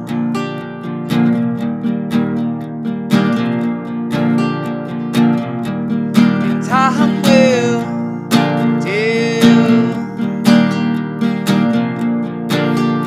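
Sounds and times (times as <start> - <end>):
acoustic guitar strumming: 0.0 - 13.0
man singing: 6.5 - 10.2.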